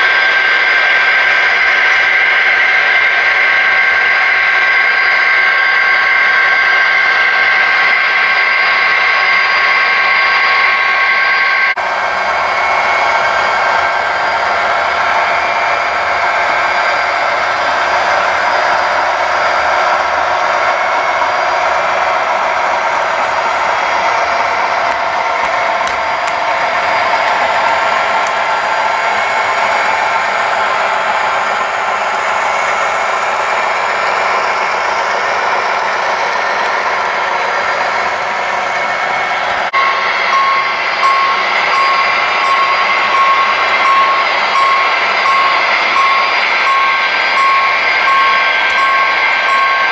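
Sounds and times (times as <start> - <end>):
model train whirring hum: 0.0 - 49.9.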